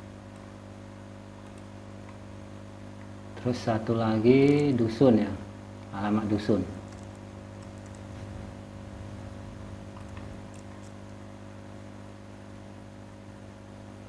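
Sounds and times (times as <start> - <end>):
low electrical hum: 0.0 - 14.0
mouse and keyboard clicks: 6.8 - 8.1.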